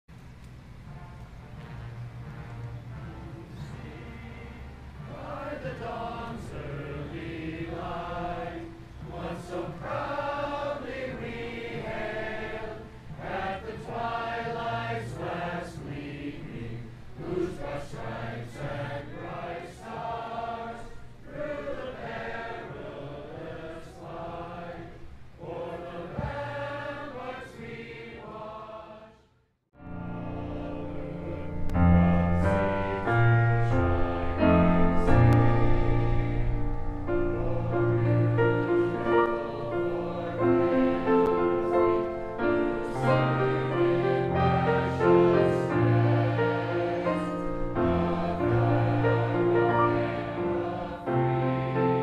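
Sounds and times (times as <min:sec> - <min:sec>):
large choir singing: 0:01.0 - 0:52.0.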